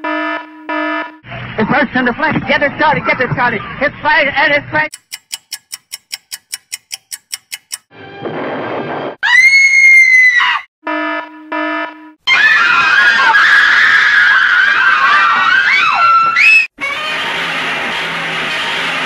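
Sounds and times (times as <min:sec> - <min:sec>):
baby wailing: 0:16.8 - 0:17.4.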